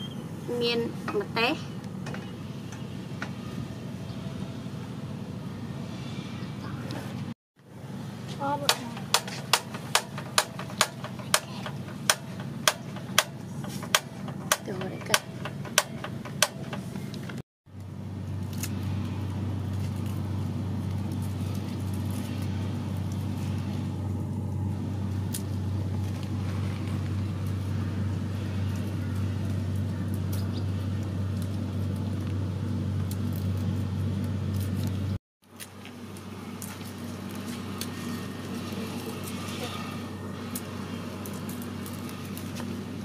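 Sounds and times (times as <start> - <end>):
low mechanical hum: 0.0 - 43.0
sharp knocks: 8.7 - 17.0.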